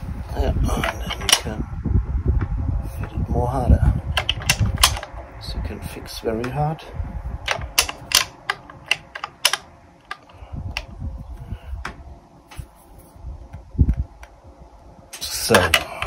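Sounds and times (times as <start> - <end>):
hand tool metallic clicks: 0.8 - 1.6, 7.5 - 10.9.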